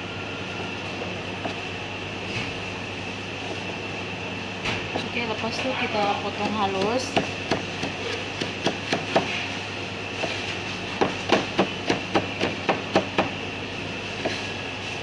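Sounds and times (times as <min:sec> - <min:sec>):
steady hum: 0:00.0 - 0:15.0
cleaver chopping on plastic board: 0:06.4 - 0:09.4.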